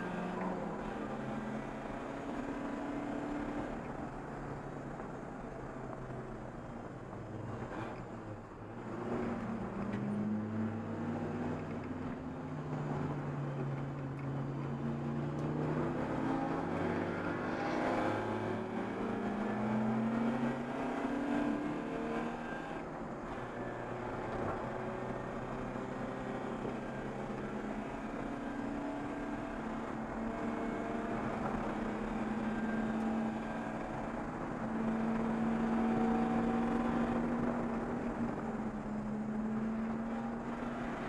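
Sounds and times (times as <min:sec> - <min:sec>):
race car engine revving: 0:00.0 - 0:03.8, 0:14.3 - 0:41.0.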